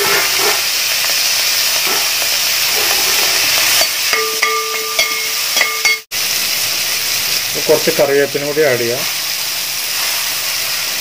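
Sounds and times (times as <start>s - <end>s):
onions sizzling in hot oil: 0.0s - 11.0s
metal ladle knocking a pot: 4.1s - 6.0s.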